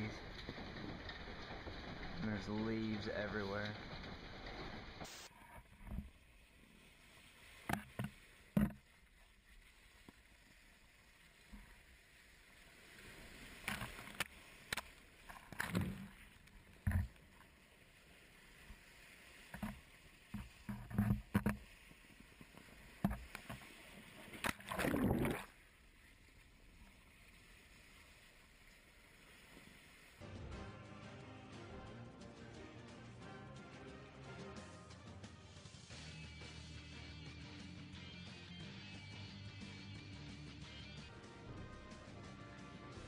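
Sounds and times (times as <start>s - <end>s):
sea water splashing at shoreline: 0.0s - 30.2s.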